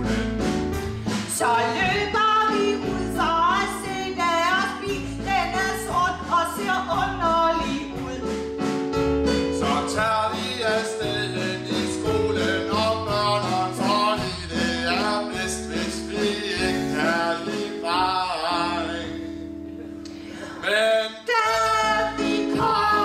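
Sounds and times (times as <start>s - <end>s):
backing music with bass and guitar: 0.0s - 23.0s
person singing: 9.6s - 19.3s, 20.3s - 23.0s.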